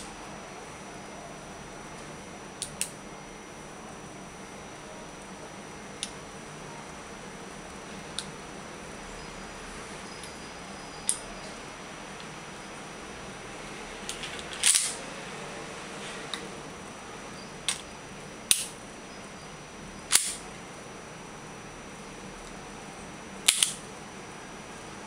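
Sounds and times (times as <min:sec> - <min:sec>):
pistol parts clicking and clacking: 0:14.1 - 0:15.0, 0:18.5 - 0:18.8, 0:20.1 - 0:20.4, 0:23.5 - 0:23.8.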